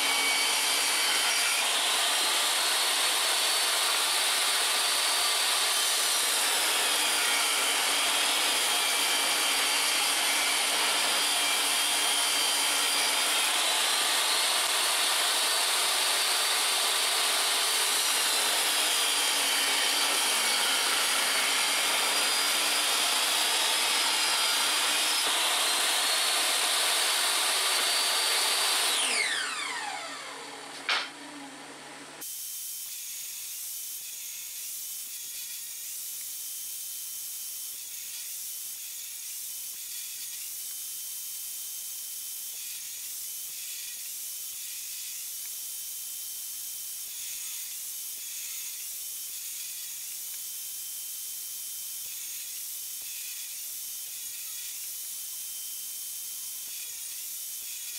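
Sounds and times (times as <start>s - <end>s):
table saw ripping wood: 0.0s - 31.4s
saw blade spinning down: 0.0s - 31.8s.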